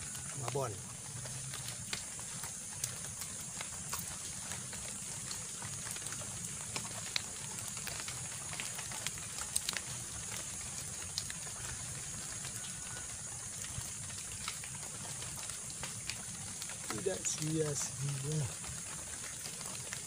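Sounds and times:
steady high hiss: 0.0 - 0.9, 16.9 - 18.6.

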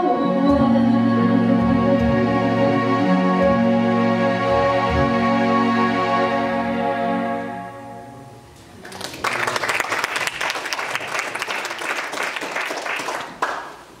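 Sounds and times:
audience applause: 8.8 - 13.8.

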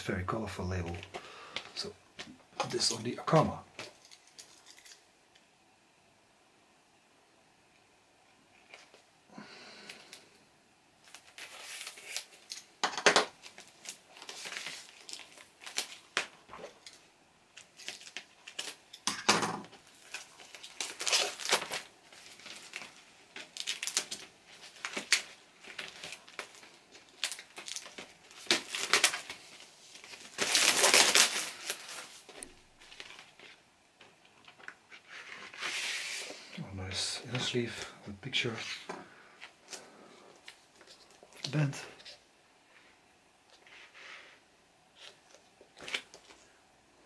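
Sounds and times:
plastic sleeve crinkling: 0.9 - 5.1, 11.0 - 19.1, 19.7 - 38.8, 43.5 - 46.5.

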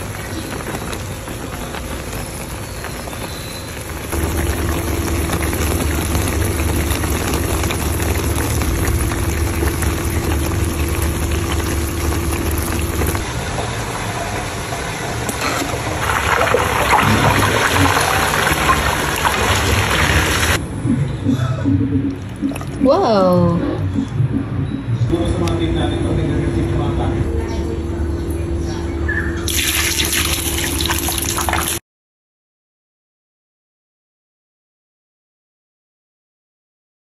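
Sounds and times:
liquid bubbling in a pan: 0.1 - 20.6
steady low hum: 3.8 - 29.5.

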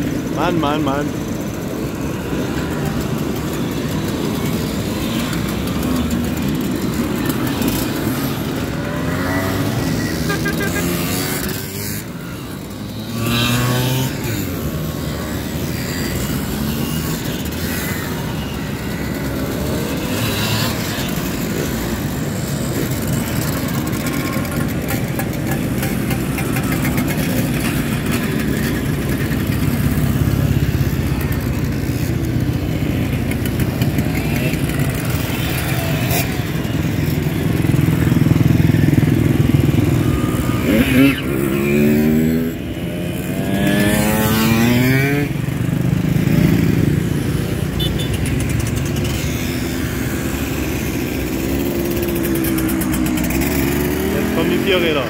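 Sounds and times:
mopeds buzzing past: 0.1 - 55.0.

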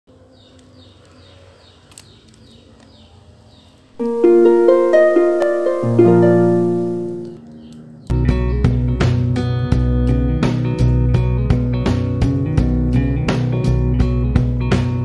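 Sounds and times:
harp-like plucked arpeggio: 4.0 - 7.4.

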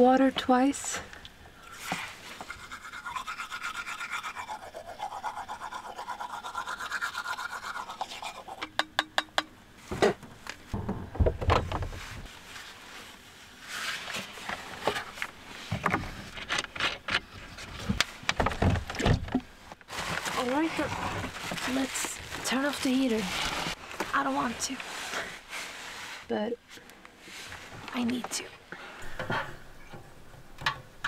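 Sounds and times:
toothbrush scrubbing teeth: 1.7 - 8.6
knocks and rustling: 8.6 - 12.3, 14.1 - 22.6.

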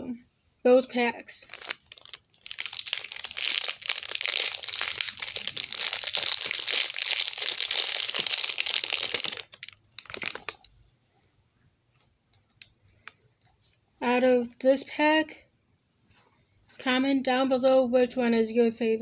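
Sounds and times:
plastic bag crinkling: 1.3 - 10.8.

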